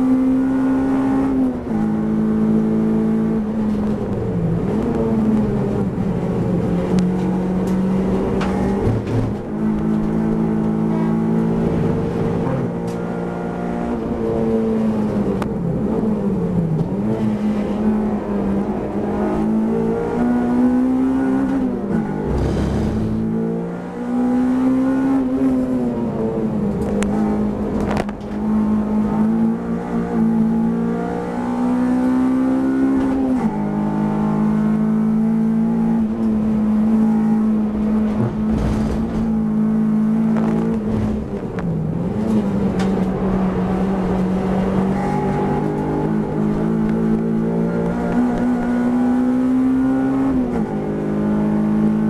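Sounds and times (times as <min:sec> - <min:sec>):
race car engine accelerating: 0:00.0 - 0:52.0.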